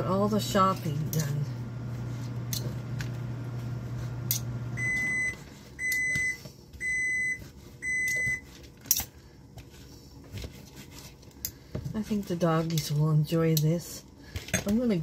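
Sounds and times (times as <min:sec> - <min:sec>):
microwave oven humming: 0:00.0 - 0:09.6
microwave beeps: 0:04.4 - 0:08.5.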